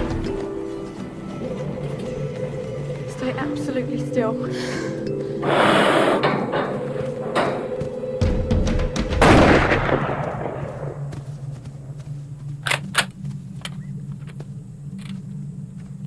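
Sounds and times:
gunshots: 9.2 - 11.0.

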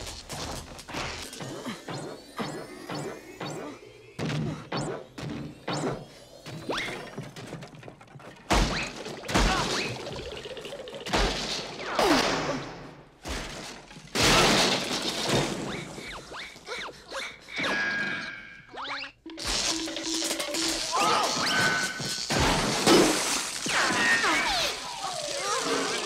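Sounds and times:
cartoon crashes and smashes: 8.4 - 10.2, 11.0 - 16.6, 19.4 - 26.0.

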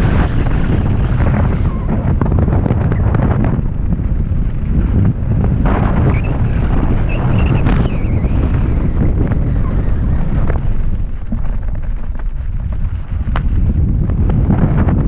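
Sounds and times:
bike knocks and rattles: 0.0 - 15.0
tyres rolling over loose stones: 0.0 - 15.0
wind buffeting camera: 0.0 - 15.0
high squeals: 6.0 - 10.8.

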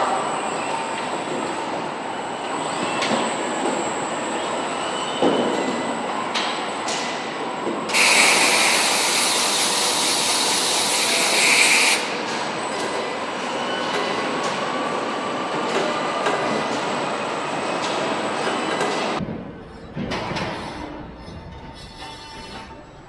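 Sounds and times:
factory machinery running: 0.0 - 23.0
loud hiss: 8.0 - 12.0
metal clanks and knocks: 19.2 - 22.9.

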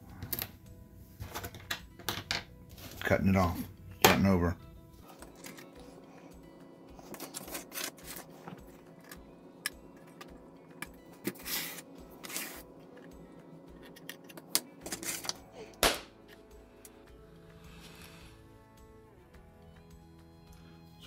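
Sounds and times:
soft background music with beat: 0.0 - 21.0
hobby knife scraping: 7.1 - 9.2.

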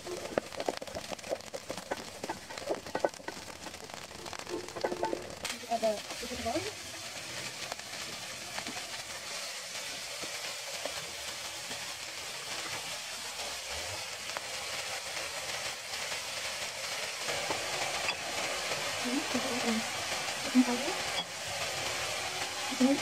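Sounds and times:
food sizzling in hot oil: 0.0 - 23.0.

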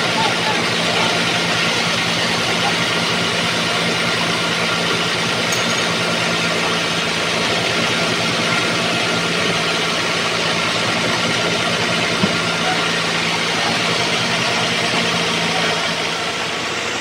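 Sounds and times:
band sawmill running: 0.0 - 17.0.

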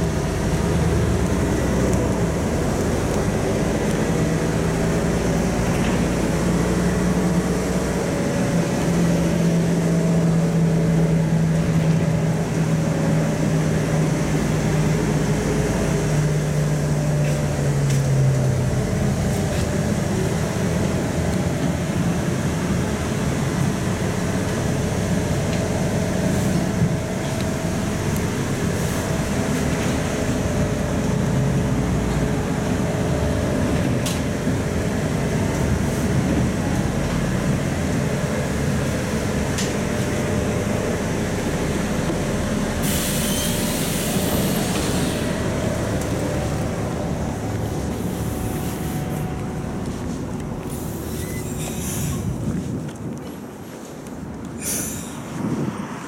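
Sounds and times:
bus engine and road noise: 0.0 - 56.0
air brake hiss: 42.8 - 45.4, 50.7 - 52.3, 54.6 - 55.3.

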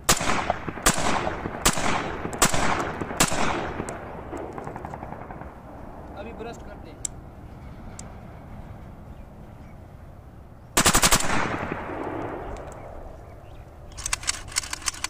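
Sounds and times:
gunshot echo: 0.1 - 5.6, 10.8 - 13.0
rifle automatic burst: 0.1 - 5.7, 10.8 - 13.0.

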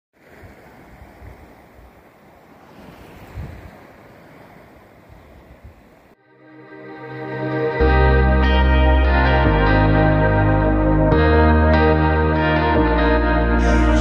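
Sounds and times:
sea surf: 0.2 - 14.0
wind buffeting microphone: 0.3 - 6.1
music: 6.2 - 14.0.

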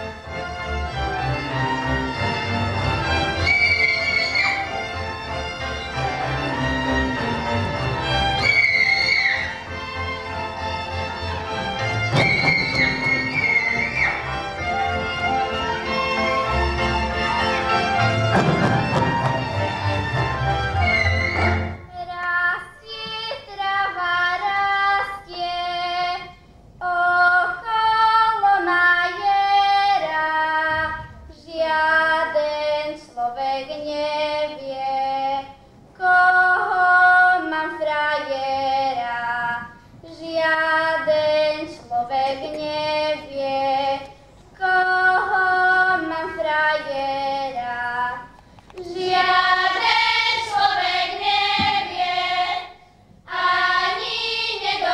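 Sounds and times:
children's choir singing: 0.0 - 54.9
girl singing unaccompanied: 21.8 - 54.9.

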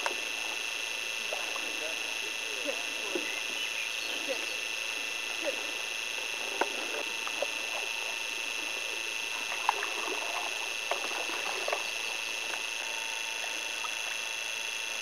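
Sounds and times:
high-pitched whine: 0.0 - 15.0
paddles splashing water: 6.2 - 12.8.

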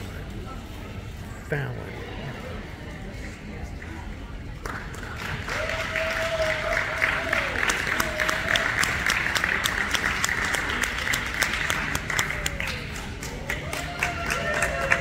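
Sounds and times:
audience applauding: 4.6 - 15.0.

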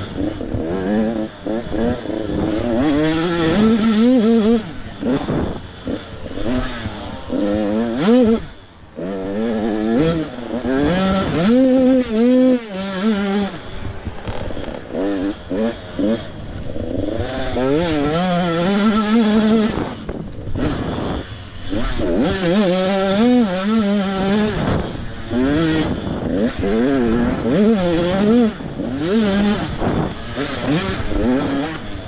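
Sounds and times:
motocross bike engines revving: 0.0 - 32.0.

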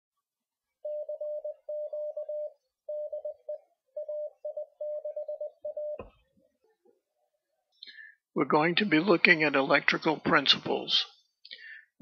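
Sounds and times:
morse code tone: 0.8 - 6.1.

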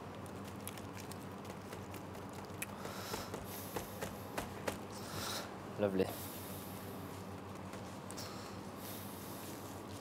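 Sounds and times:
hands patting biscuit crumbs: 0.0 - 5.0.

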